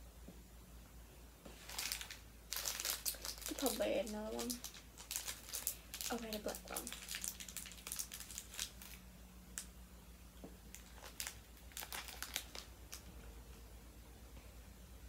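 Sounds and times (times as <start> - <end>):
plastic candy packet crinkling: 1.6 - 9.7, 10.7 - 13.1.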